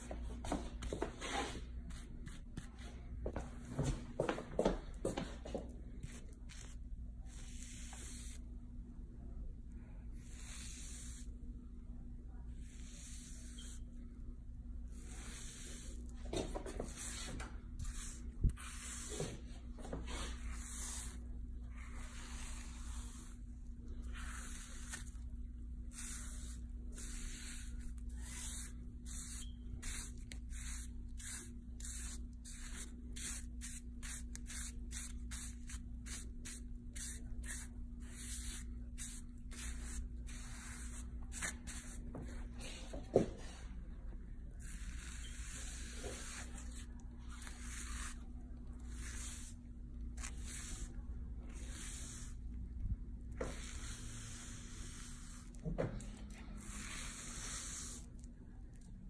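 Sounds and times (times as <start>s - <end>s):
steady low hum: 0.0s - 59.0s
brush swishing through wet hair: 14.9s - 43.1s, 44.6s - 52.6s, 53.3s - 55.6s, 56.4s - 58.3s.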